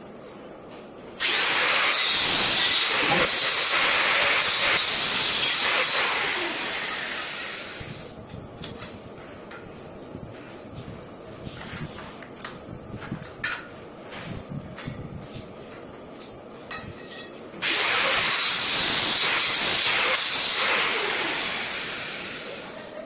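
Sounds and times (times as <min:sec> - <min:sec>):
power tool running: 0:01.2 - 0:08.1, 0:17.6 - 0:22.8.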